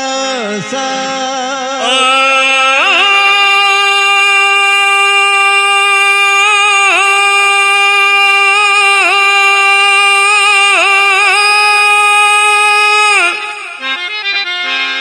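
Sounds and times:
person singing long high note: 0.6 - 14.2.

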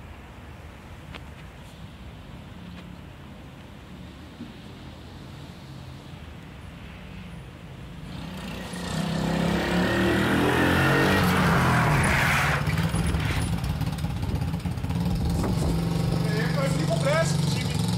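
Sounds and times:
quad bike engine passing: 8.0 - 17.9.

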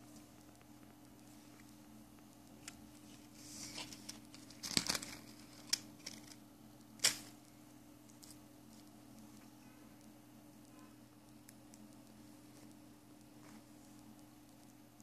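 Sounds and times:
soft rustling: 2.6 - 6.4.

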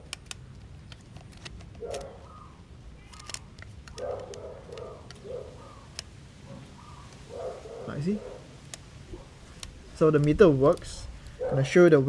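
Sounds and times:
camera dial clicks: 0.0 - 2.3, 3.0 - 5.3
low animal calls: 1.8 - 3.4, 4.0 - 9.4.

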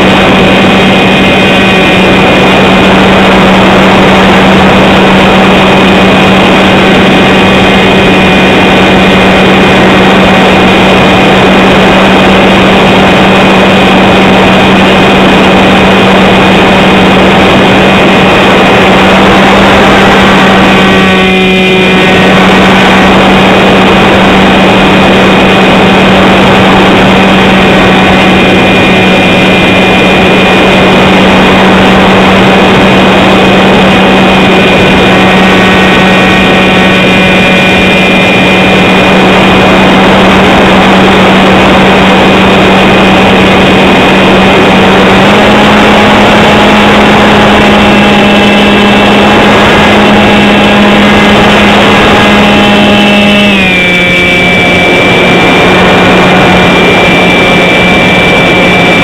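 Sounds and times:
model aircraft motor droning: 0.0 - 59.0
rushing air: 0.0 - 59.0.

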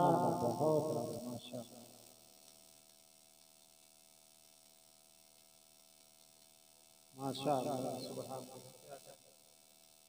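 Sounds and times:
voice: 0.0 - 1.8, 7.2 - 9.2
faint electrical mains hum: 0.0 - 10.0.

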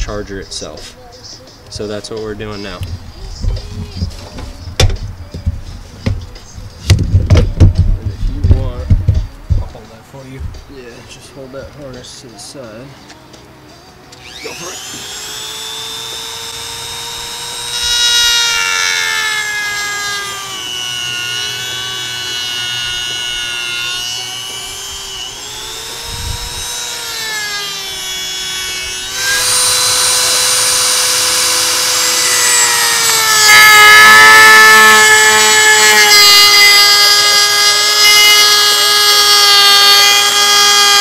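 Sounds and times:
power tool whining while cutting: 14.1 - 41.0.

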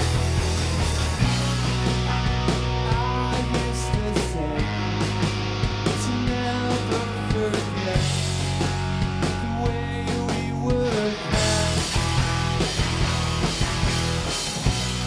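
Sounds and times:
electric bass notes: 0.0 - 15.0
electric guitar: 0.0 - 15.0
drum hits: 11.4 - 15.0.

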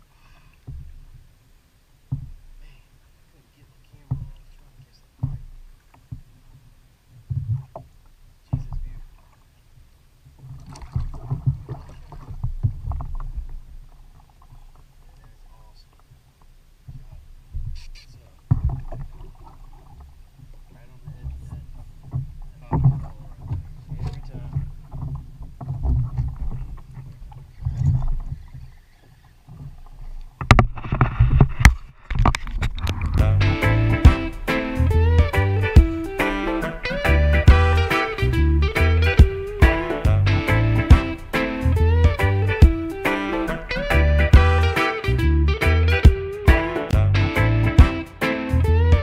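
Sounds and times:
water slapping against kayaks: 0.0 - 44.8
wind on microphone: 30.4 - 44.5
low rumble: 32.7 - 46.2
loud sharp splashes: 33.1 - 45.1.

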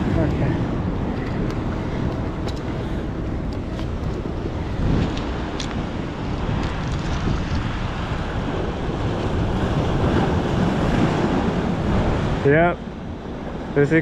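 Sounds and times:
waves washing against rocks: 0.0 - 12.8
wind buffeting microphone: 0.0 - 14.0.

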